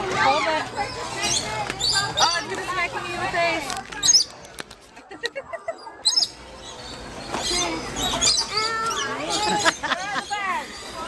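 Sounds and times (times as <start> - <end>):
lorikeets chirping and screeching: 0.2 - 2.9, 4.0 - 4.4, 5.7 - 11.0.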